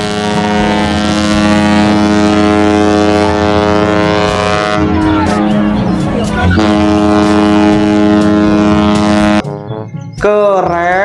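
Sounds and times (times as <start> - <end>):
ship deep drone: 0.0 - 10.0.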